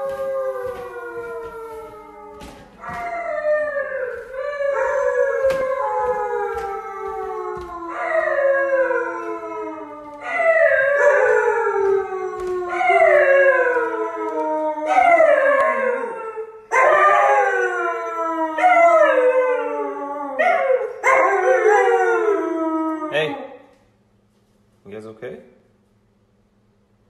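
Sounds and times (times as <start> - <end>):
husky howling: 0.0 - 23.6.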